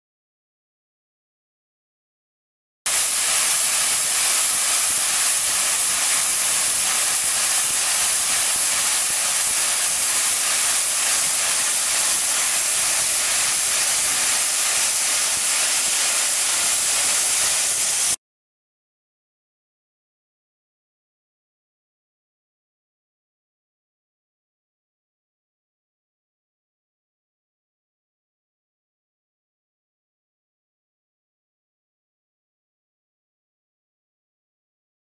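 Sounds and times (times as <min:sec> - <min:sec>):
hiss of spray nozzles: 0:02.9 - 0:18.2.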